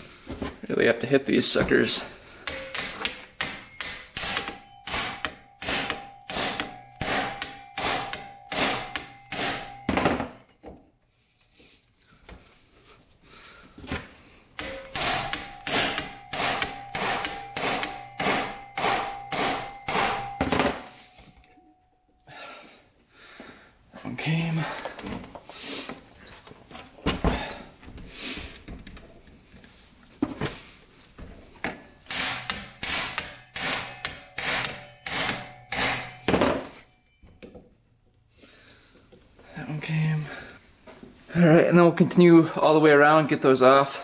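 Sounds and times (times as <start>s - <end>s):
hammer striking impact driver: 2.4s - 10.3s, 14.6s - 21.5s, 32.0s - 36.8s.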